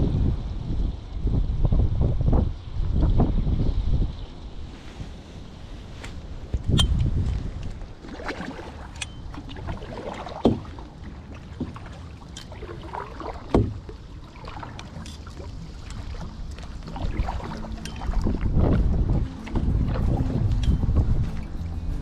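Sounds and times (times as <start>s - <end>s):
low wind rumble: 0.0s - 22.0s
water splashing around paddle: 4.4s - 22.0s
paddle knocking against canoe: 6.5s - 21.7s.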